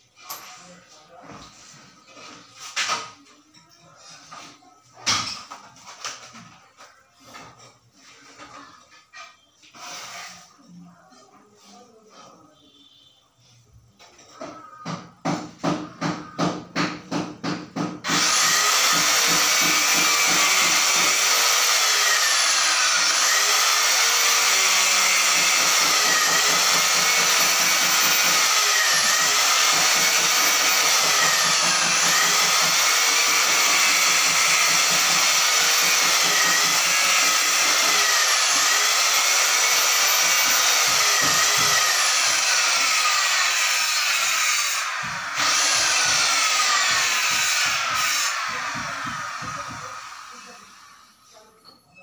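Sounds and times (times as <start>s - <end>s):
angle grinder cutting tile: 18.0s - 51.1s.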